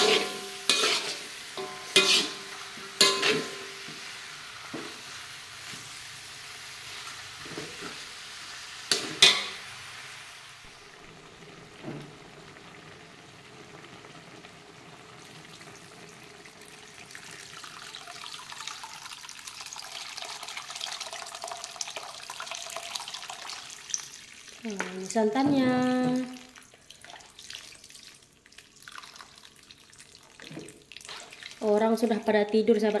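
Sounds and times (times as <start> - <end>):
food sizzling in a wok: 0.0 - 26.2.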